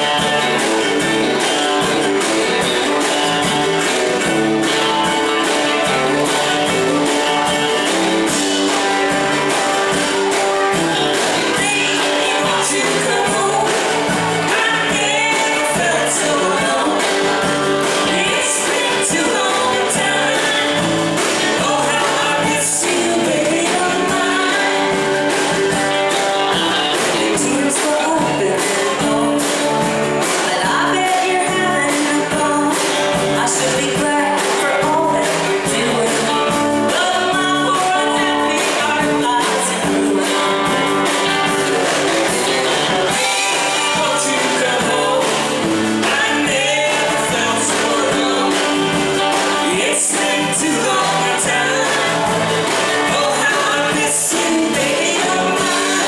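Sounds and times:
drum kit steady beat: 0:00.0 - 0:56.0
electric bass: 0:00.0 - 0:56.0
electric guitar: 0:00.0 - 0:56.0
woman singing: 0:11.1 - 0:41.3, 0:42.8 - 0:56.0.

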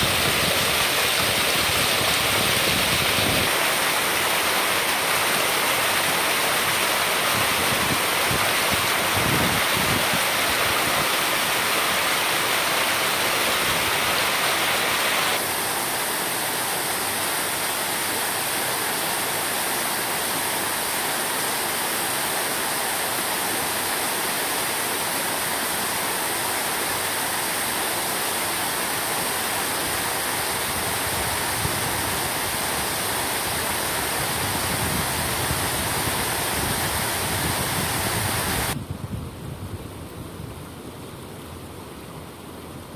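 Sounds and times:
water rushing over a weir: 0:00.0 - 0:38.8.

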